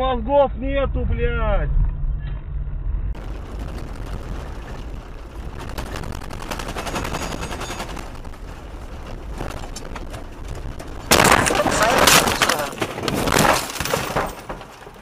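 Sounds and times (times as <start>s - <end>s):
tyre and road noise: 1.2s - 15.0s
gravel clattering on car underside: 3.2s - 15.0s.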